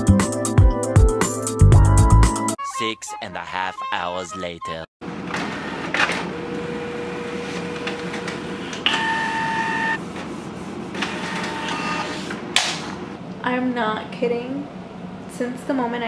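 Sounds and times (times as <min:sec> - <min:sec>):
printer motors whirring: 0:05.1 - 0:13.1
sharp printer clicks: 0:11.0 - 0:12.9.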